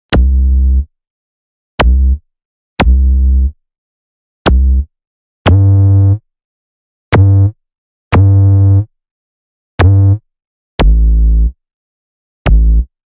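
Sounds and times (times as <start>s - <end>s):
synthesized bass notes: 0.1s - 0.9s, 1.8s - 2.2s, 2.8s - 3.5s, 4.5s - 4.9s, 5.5s - 6.2s, 7.1s - 8.9s, 9.8s - 10.2s, 10.8s - 11.6s, 12.4s - 12.9s.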